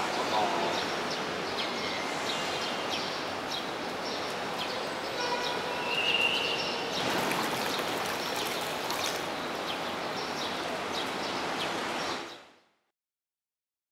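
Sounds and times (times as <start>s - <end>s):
pool water rushing and splashing: 6.2s - 12.4s.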